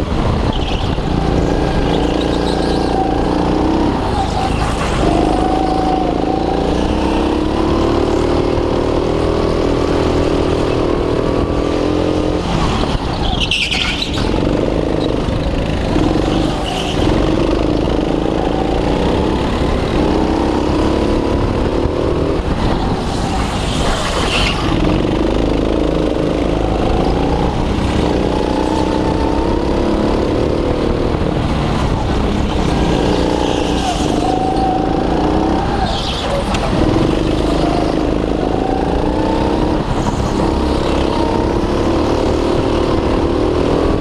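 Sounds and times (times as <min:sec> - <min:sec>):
go-kart engine revving: 0:00.0 - 0:44.0
other karts running: 0:00.0 - 0:44.0.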